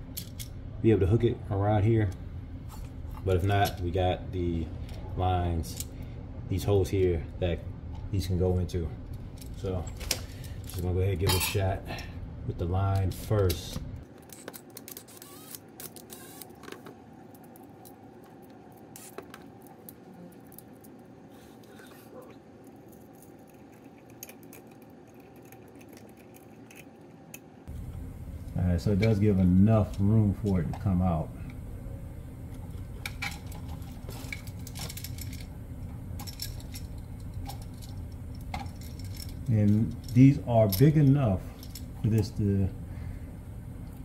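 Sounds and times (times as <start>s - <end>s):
steady low hum: 0.0s - 44.0s
wires clicking and scraping: 12.9s - 31.6s, 32.4s - 42.6s
small metallic clinks: 36.2s - 42.2s.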